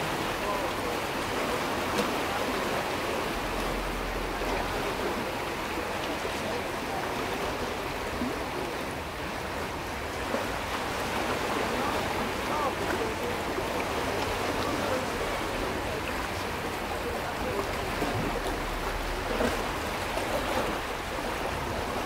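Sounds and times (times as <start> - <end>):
sea water washing against rocks: 0.0 - 22.0.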